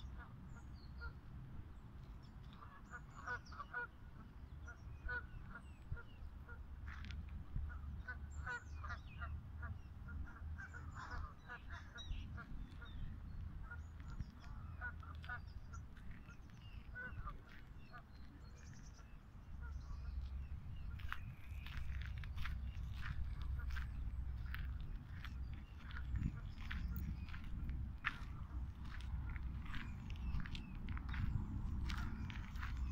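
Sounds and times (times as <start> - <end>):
low steady rumble: 0.0 - 32.9.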